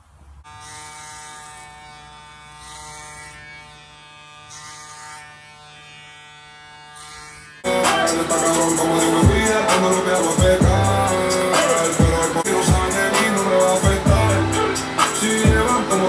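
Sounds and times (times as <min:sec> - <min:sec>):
electric hair clipper humming: 0:00.5 - 0:16.0
hip-hop music: 0:07.6 - 0:16.0.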